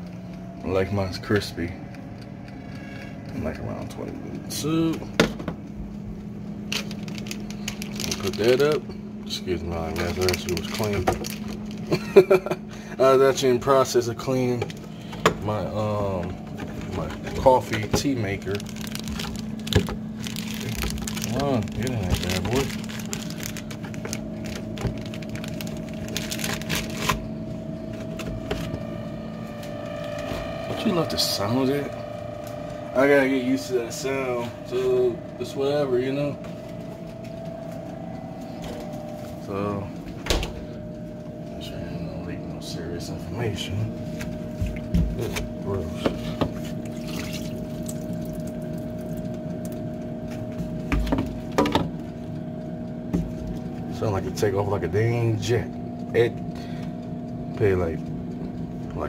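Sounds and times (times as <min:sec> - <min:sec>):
steady low hum: 0:00.0 - 0:59.0
plastic bag crinkling: 0:06.7 - 0:08.8, 0:09.7 - 0:12.0, 0:16.7 - 0:27.3.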